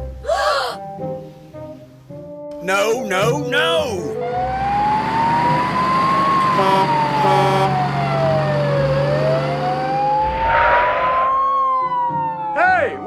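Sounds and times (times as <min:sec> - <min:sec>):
slow wailing siren: 0:04.1 - 0:13.0.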